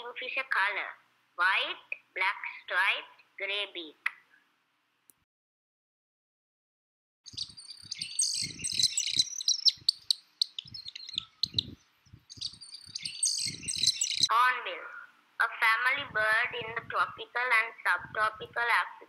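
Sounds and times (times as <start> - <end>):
kingfisher high-pitched chirps: 7.3 - 14.3.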